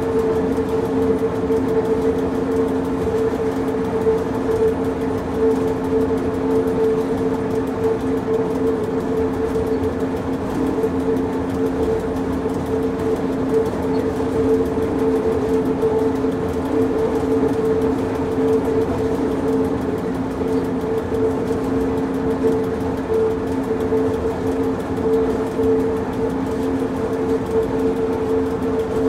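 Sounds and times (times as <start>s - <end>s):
electric railcar rumbling on track: 0.0s - 29.0s.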